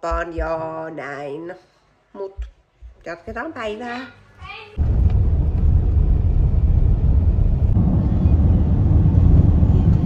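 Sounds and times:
car road rumble: 4.8s - 10.0s.

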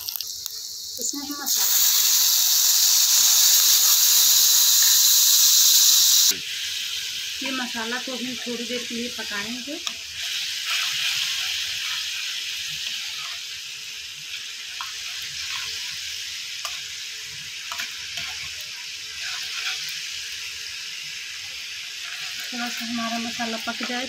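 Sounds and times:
paste sizzling in hot oil: 0.0s - 24.0s
metal spoon scraping pan: 19.1s - 20.0s.

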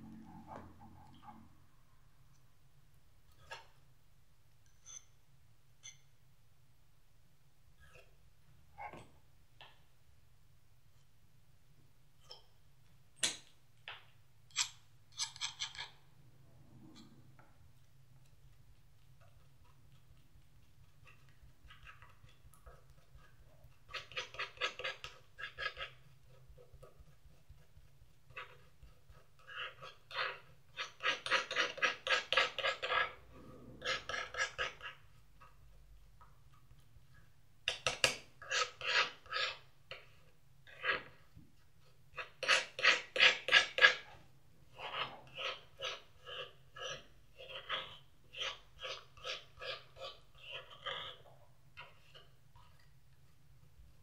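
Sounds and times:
palette knife scraping paint: 14.5s - 16.1s, 16.7s - 52.4s.

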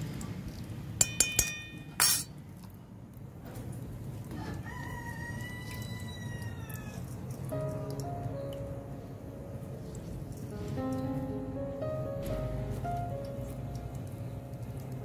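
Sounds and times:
spoon scraping: 1.0s - 2.3s
spoon clinking against steel bowl: 1.0s - 2.4s
rooster crowing: 4.4s - 7.1s.

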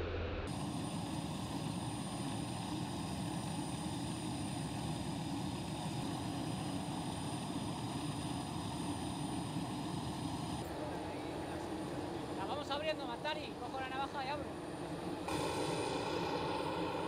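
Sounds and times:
aircraft turbine drone: 0.0s - 17.0s
high thin whine: 12.4s - 17.0s.

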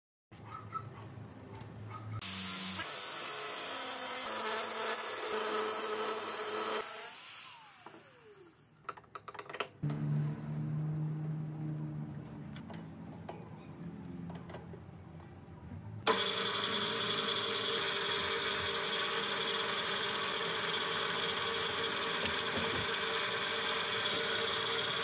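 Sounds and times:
metal lathe whining: 16.1s - 25.0s.

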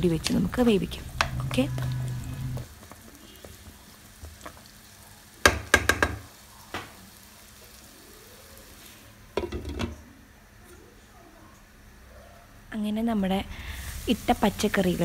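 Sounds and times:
wooden spatula stirring vegetables: 0.0s - 7.1s
frying sizzle: 0.0s - 11.0s, 12.8s - 15.0s
spatula knocking against pan: 5.4s - 6.3s.

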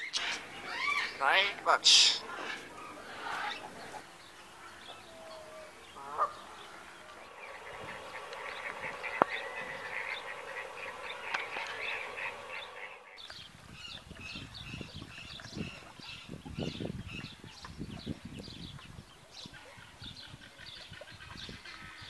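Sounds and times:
waterfowl honking: 0.0s - 13.2s.

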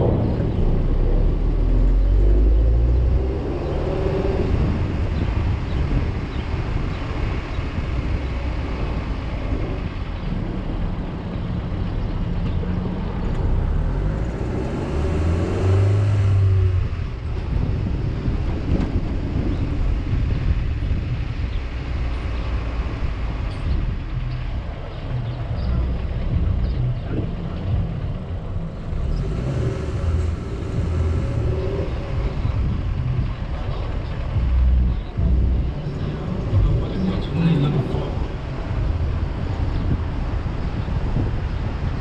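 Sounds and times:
vehicle engine and road noise: 0.0s - 42.0s
louder low hum: 25.0s - 40.1s.

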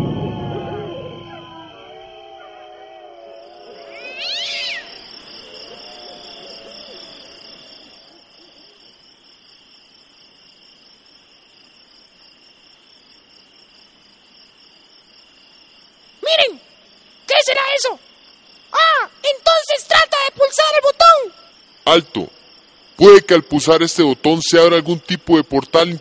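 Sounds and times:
crickets chirring: 0.0s - 26.0s
loud animal yowl: 0.4s - 8.5s.

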